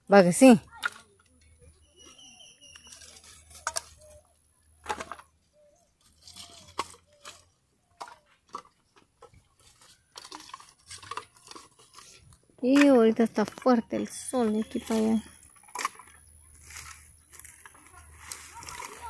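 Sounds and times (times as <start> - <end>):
firewood sticks knocking together: 2.8 - 4.2, 4.8 - 5.3, 6.2 - 13.7, 14.6 - 19.0.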